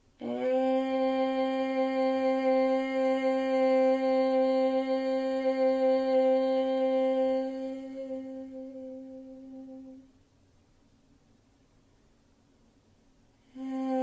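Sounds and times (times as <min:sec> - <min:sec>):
woman singing long steady note: 0:00.0 - 0:10.2, 0:13.4 - 0:14.0.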